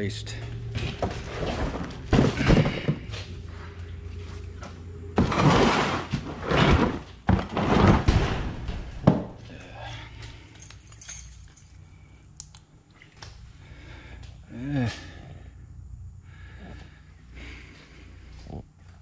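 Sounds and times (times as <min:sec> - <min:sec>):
objects clattering and scraping: 0:00.3 - 0:09.5.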